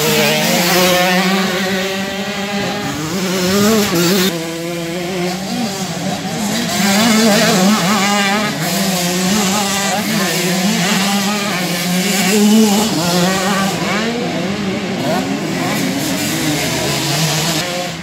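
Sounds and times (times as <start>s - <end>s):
motocross bike engines revving: 0.0s - 18.0s.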